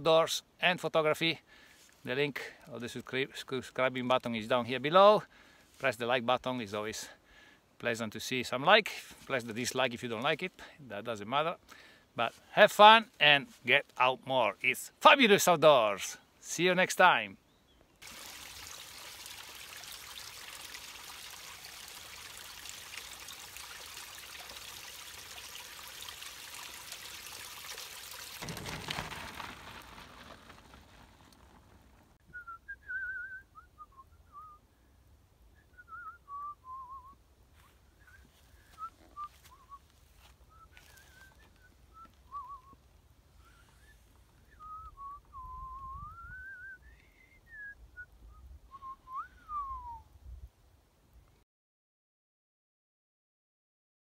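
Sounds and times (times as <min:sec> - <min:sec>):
stream running over rocks: 0:18.0 - 0:32.2
person whistling a tune: 0:32.3 - 0:34.6, 0:35.6 - 0:37.2, 0:38.0 - 0:39.8, 0:40.5 - 0:42.8, 0:43.4 - 0:50.1.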